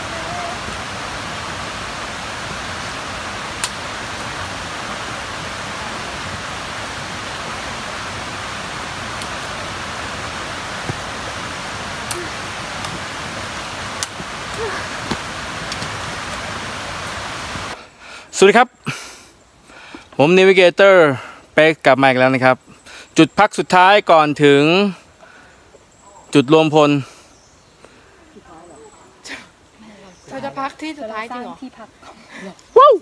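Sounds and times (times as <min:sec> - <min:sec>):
flowing water rushing: 0:00.0 - 0:17.8.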